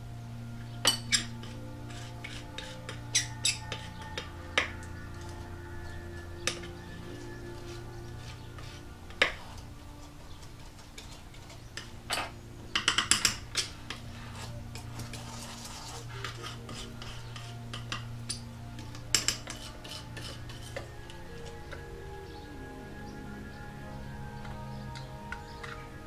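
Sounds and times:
soft background music: 0.0s - 26.0s
palette knife scraping tile: 1.4s - 3.9s, 14.2s - 18.0s, 19.2s - 20.9s.

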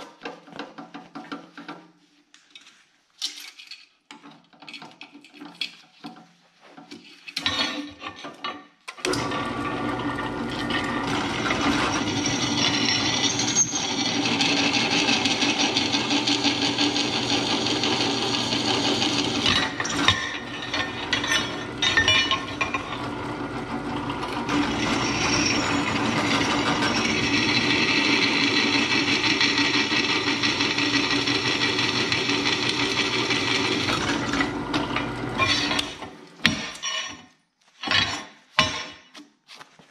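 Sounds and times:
drill press motor hum: 9.1s - 36.1s
drill bit screeching into steel: 11.6s - 14.6s, 24.5s - 28.0s.

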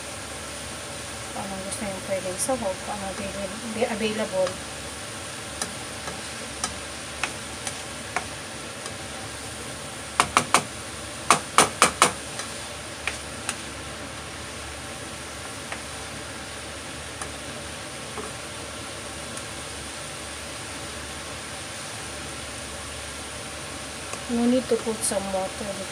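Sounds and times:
food sizzling in a frying pan: 0.0s - 25.9s
plastic spoon knocking a pan: 10.2s - 10.7s.

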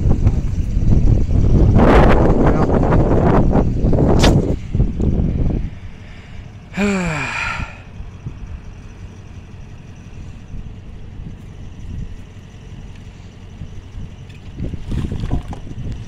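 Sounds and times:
low steady rumble: 0.0s - 16.0s
person sighing: 6.2s - 7.9s.

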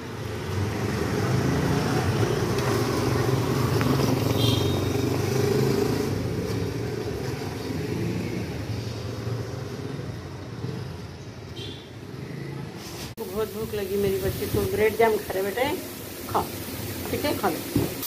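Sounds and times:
motorcycle engine passing: 0.1s - 13.0s.

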